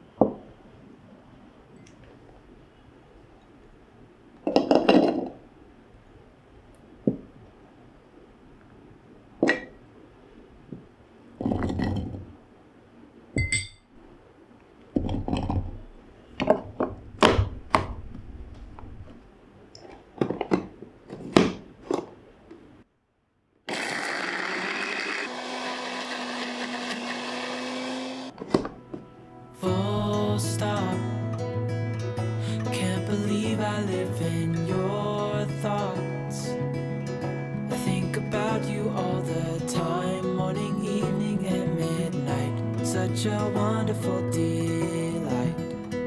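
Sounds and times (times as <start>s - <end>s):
knocks and clinks of plastic jar: 4.5s - 5.4s
blender motor grinding: 23.7s - 28.3s.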